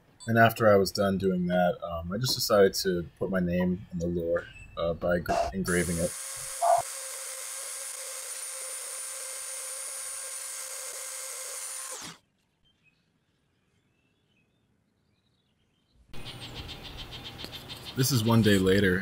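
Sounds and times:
rotary tool engraving wood: 0:05.6 - 0:12.2.

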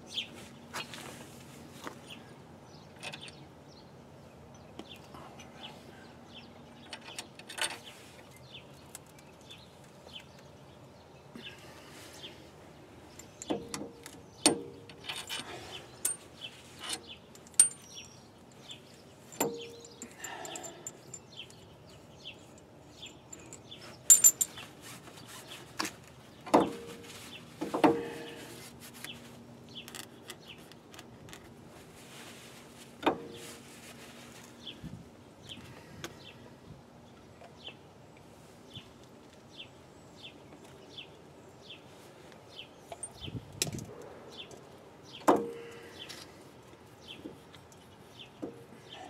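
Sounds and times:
metal tools clinking: 0:13.1 - 0:21.7, 0:22.4 - 0:24.7.

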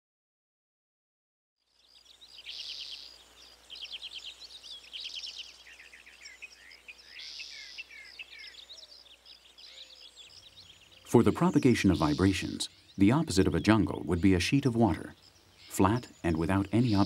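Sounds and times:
songbirds singing: 0:01.6 - 0:17.0.

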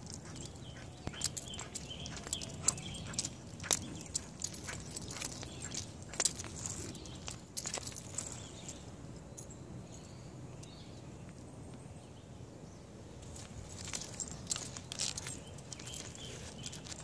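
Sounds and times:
dog claws scraping on asphalt: 0:00.0 - 0:08.6, 0:13.2 - 0:17.0
leash and clip dragging: 0:00.0 - 0:08.8, 0:13.2 - 0:17.0.

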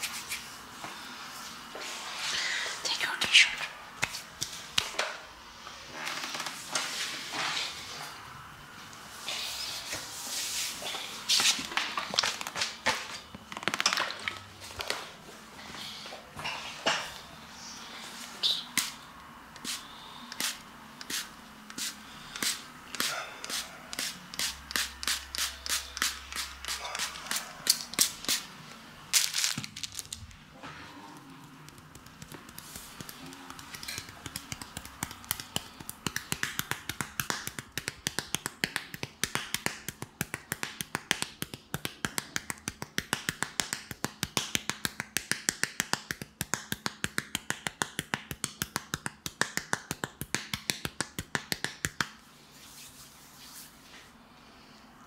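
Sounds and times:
spray bottle misting: 0:20.4 - 0:28.5
fingertips tapping wet skin: 0:31.5 - 0:52.2.

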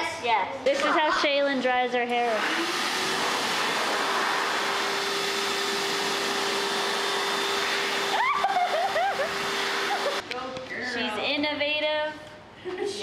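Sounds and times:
electric hand dryer blowing: 0:01.0 - 0:10.2.

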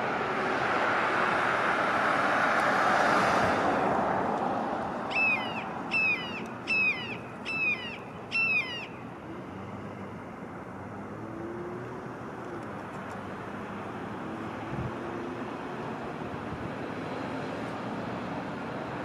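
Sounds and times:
passing vehicle rush: 0:00.0 - 0:19.0
hawk calling: 0:05.1 - 0:09.0.

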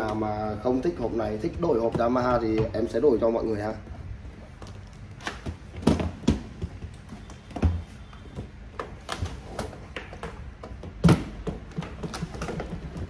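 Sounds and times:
guitar cases knocking together: 0:08.9 - 0:13.0.

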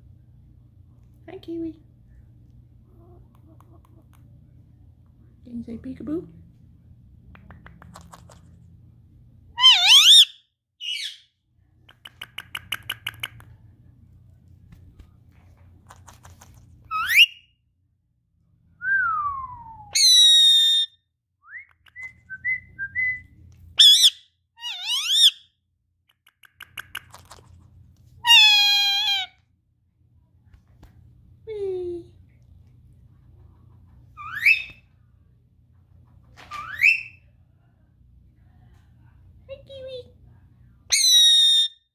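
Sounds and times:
parakeet clicking chatter: 0:11.9 - 0:13.5, 0:26.1 - 0:27.4
parakeet whistled calls: 0:16.9 - 0:17.5, 0:23.8 - 0:25.4, 0:34.2 - 0:34.8, 0:40.9 - 0:41.8.

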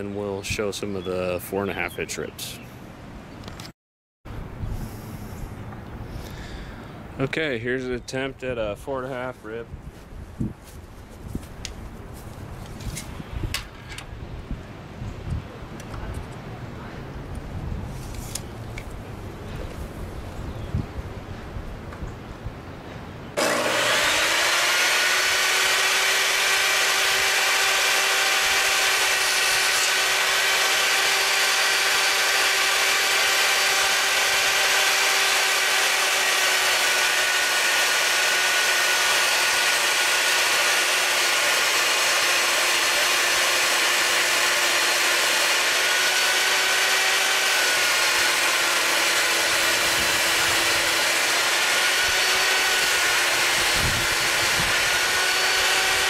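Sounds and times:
table saw motor whine: 0:23.3 - 0:56.0.

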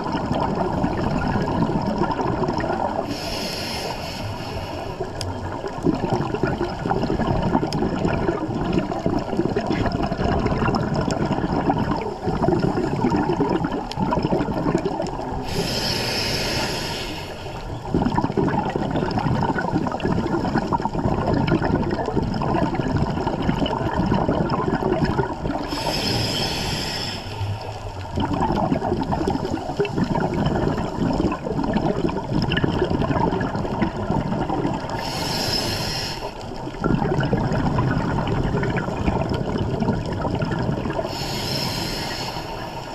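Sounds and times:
underwater regulator bubbling: 0:00.0 - 0:42.9
high hiss: 0:03.1 - 0:05.0, 0:15.4 - 0:17.6, 0:25.7 - 0:27.8, 0:35.0 - 0:36.4, 0:41.1 - 0:42.9.

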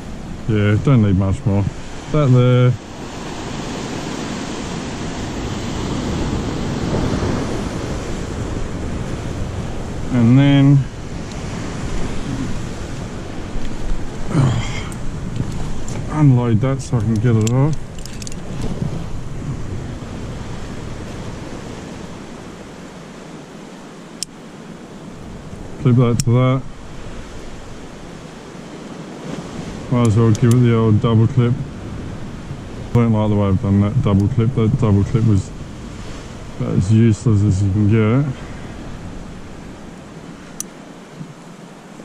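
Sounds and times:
ocean surf breaking: 0:00.0 - 0:42.0
wind on microphone: 0:00.0 - 0:42.0
carabiner click: 0:17.0 - 0:18.7.

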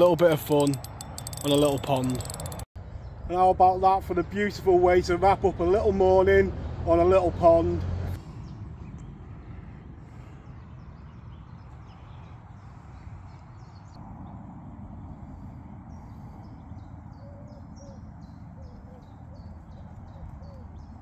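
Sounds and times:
small birds chirping: 0:15.3 - 0:21.0.

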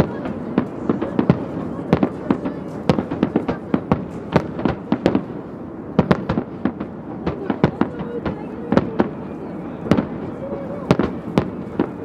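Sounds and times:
fireworks bangs with echo: 0:00.0 - 0:12.0.

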